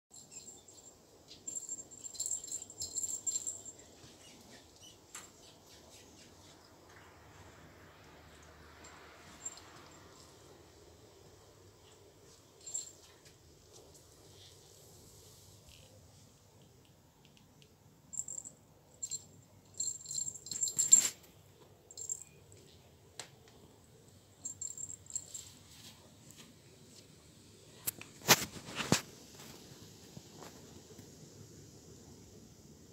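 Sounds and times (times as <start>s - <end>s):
cat toy ball jingling and rattling: 0.1s - 4.9s, 11.8s - 13.3s, 18.1s - 21.3s, 21.9s - 22.4s, 24.4s - 26.0s.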